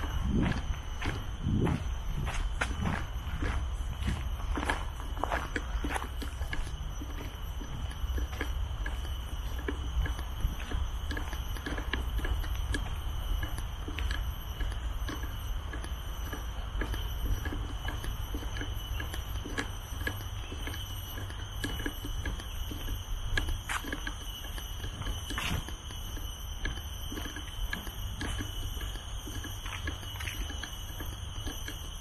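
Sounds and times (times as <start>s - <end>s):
low rumble: 0.0s - 4.2s
footsteps walking: 0.0s - 32.0s.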